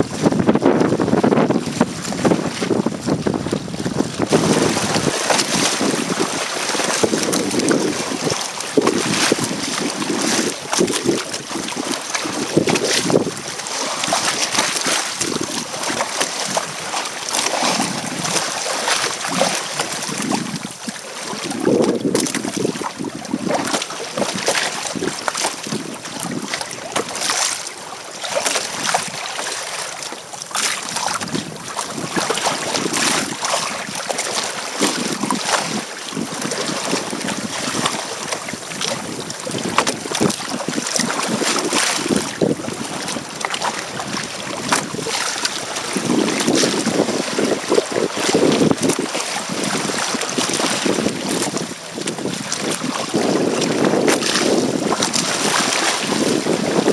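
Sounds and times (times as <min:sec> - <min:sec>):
wind buffeting microphone: 0:00.0 - 0:27.4, 0:30.5 - 0:56.9
choppy water slapping hull: 0:00.0 - 0:56.9.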